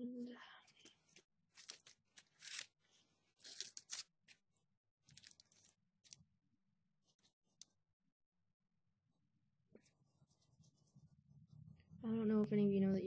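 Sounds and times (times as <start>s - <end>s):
aluminium foil crinkling: 1.5s - 2.8s, 3.4s - 4.1s, 5.1s - 6.2s.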